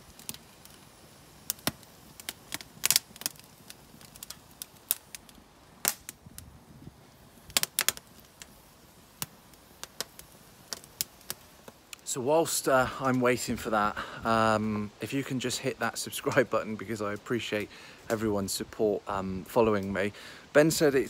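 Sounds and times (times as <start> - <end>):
sharp pops and snaps: 0.0 - 6.5, 7.4 - 12.1
logs burning and crackling: 0.0 - 21.0.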